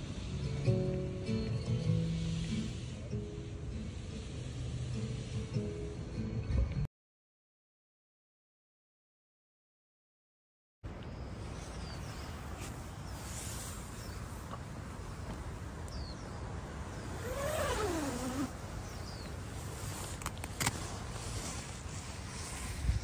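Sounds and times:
faint high bird chirps: 15.1s - 19.4s.

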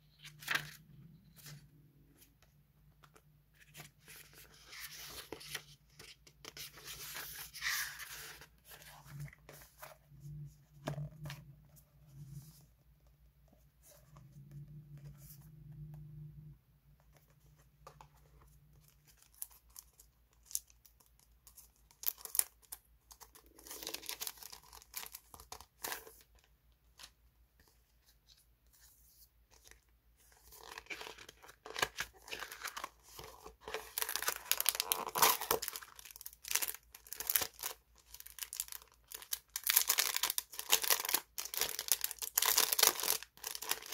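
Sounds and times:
plastic bag crinkling and tearing: 33.7s - 43.9s.

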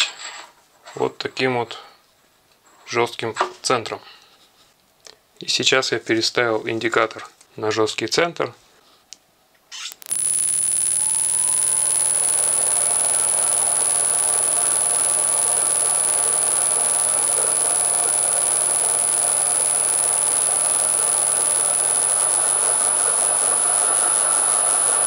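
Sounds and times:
high-pitched motor whine: 10.0s - 25.0s
milling machine running: 10.0s - 25.0s.

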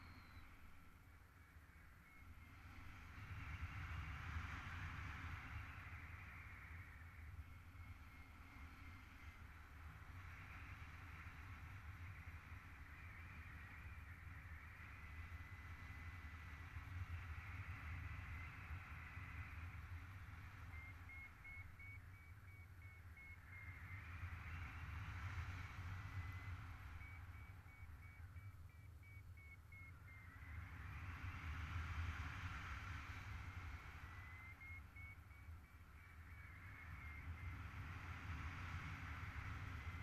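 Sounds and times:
variometer beeping rapidly: 27.0s - 29.9s.

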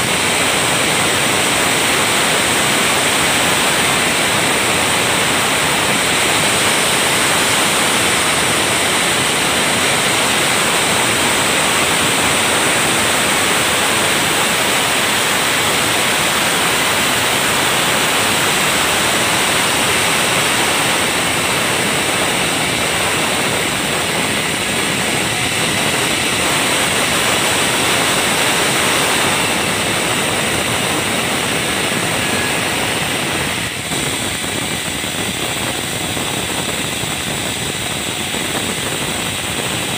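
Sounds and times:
band sawmill sawing log: 0.0s - 37.0s.

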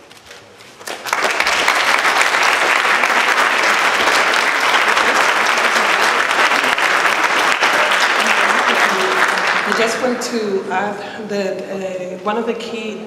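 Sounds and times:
audience applauding: 0.8s - 10.5s.

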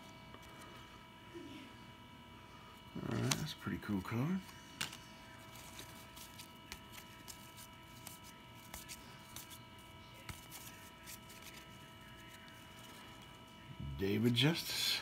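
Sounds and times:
faint steady hum: 0.0s - 15.0s
card packs rustling: 3.0s - 13.4s.

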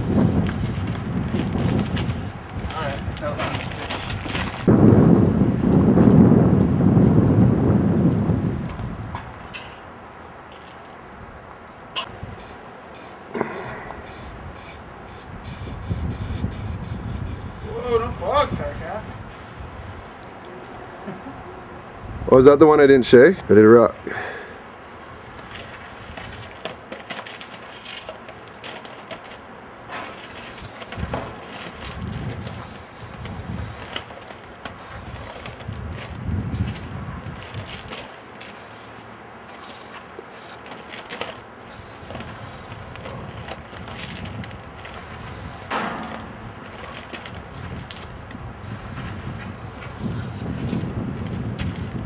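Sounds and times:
spray paint can hissing: 0.0s - 2.4s, 12.0s - 20.3s, 23.7s - 24.3s, 25.0s - 35.8s, 36.5s - 44.2s, 44.8s - 48.0s, 48.6s - 50.9s.

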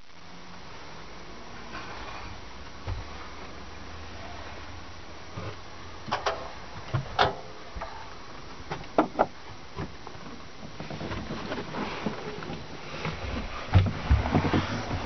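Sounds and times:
knocks and clicks on wood: 8.7s - 9.9s.

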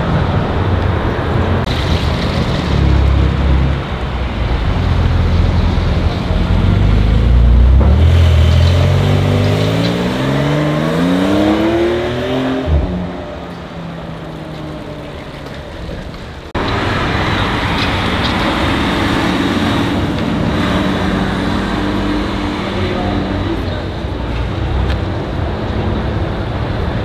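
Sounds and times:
sports car engine revving: 4.7s - 13.4s.

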